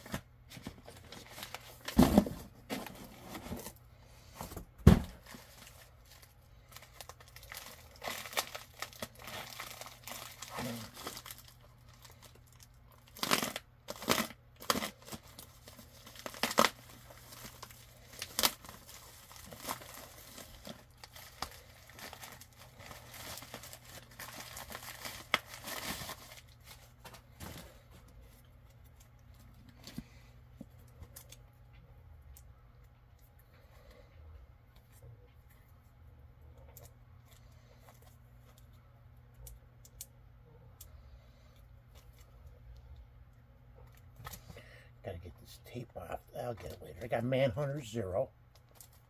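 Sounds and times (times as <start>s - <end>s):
padded mailer tearing: 13.0s - 26.6s.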